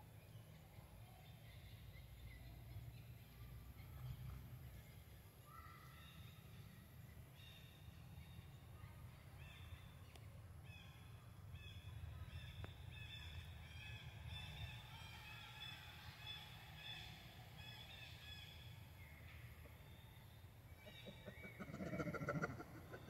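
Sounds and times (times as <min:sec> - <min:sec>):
low steady rumble: 0:19.9 - 0:23.0
high-pitched chirping animal calls: 0:20.8 - 0:23.0.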